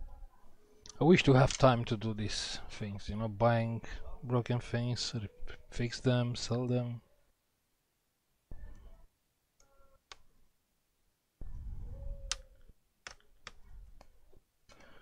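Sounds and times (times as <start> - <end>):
clicks and taps of parts and tools: 0.8 - 1.8.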